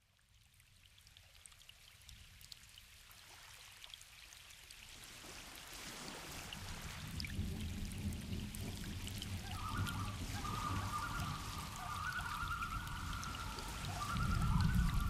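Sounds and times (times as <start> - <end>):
small water drips: 0.0 - 15.0
water rushing hiss: 4.9 - 15.0.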